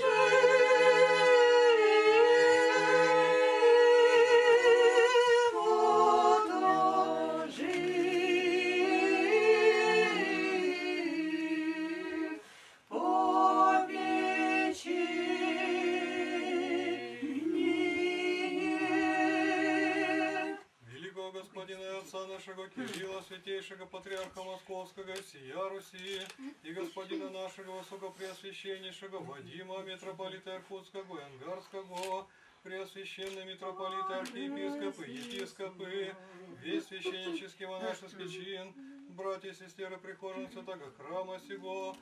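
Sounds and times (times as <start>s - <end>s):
choir singing a cappella chant: 0.0s - 20.8s, 33.8s - 35.1s.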